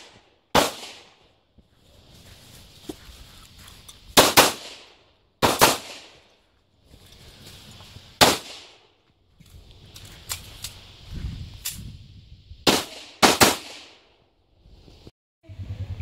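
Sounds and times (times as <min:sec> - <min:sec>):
handgun shots: 0:04.2 - 0:04.8, 0:05.4 - 0:06.0, 0:08.2 - 0:08.6.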